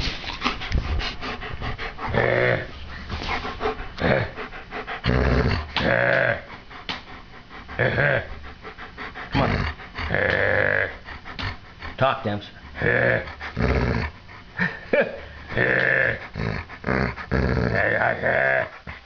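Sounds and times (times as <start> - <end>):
dog growly moaning: 1.7 - 2.8, 3.7 - 6.6, 7.5 - 12.0, 12.6 - 19.0.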